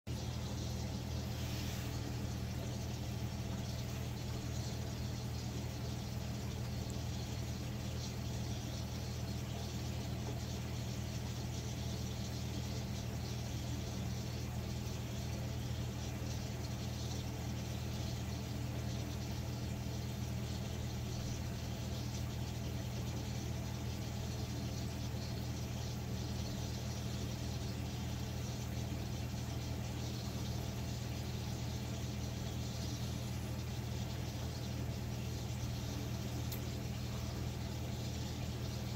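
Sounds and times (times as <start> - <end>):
aquarium pumps humming: 0.1 - 38.9
faint hiss: 1.0 - 5.6.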